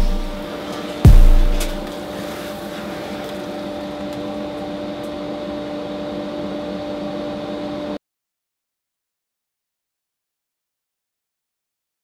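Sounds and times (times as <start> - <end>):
dust extraction vacuum humming: 0.0 - 8.0.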